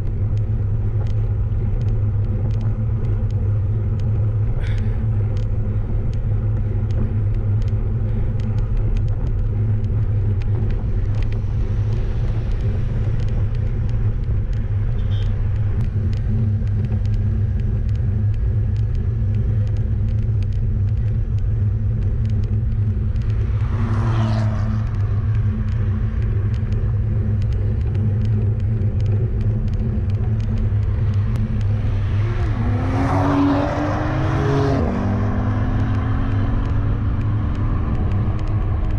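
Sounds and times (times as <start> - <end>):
wind and road noise: 0.0 - 38.9
car passing by: 23.6 - 25.0.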